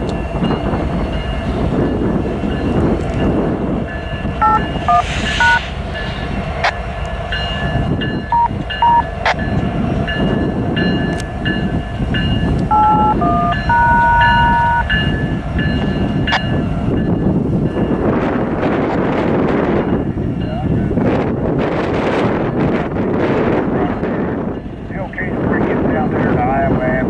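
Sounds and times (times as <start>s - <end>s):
diesel locomotives rumbling: 0.0s - 27.0s
radio touch-tone beeps: 4.4s - 5.7s, 8.3s - 9.1s, 12.7s - 14.9s.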